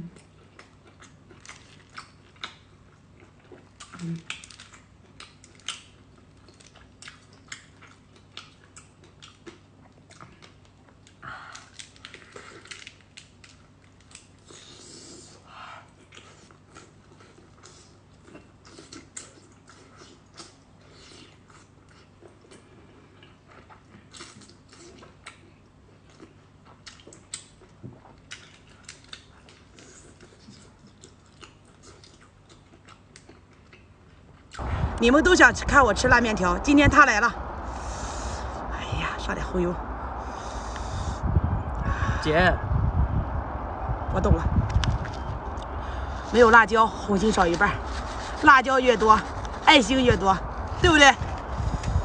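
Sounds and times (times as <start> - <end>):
person chewing wetly: 0.0 - 34.6
sucking noises: 34.6 - 52.0.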